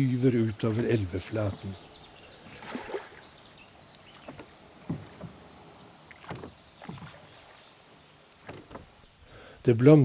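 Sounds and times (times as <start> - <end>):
oars knocking: 0.0 - 1.9, 4.0 - 7.6, 8.4 - 9.0
oars splashing in water: 0.0 - 9.0.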